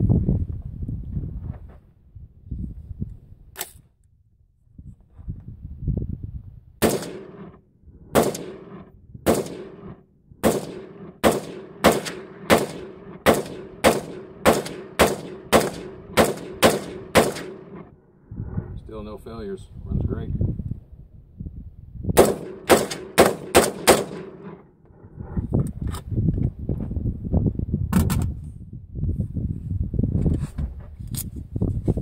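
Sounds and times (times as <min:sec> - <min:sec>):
sharp click: 0:03.6 - 0:03.8
gunshots with echo: 0:06.8 - 0:17.9, 0:22.2 - 0:24.6.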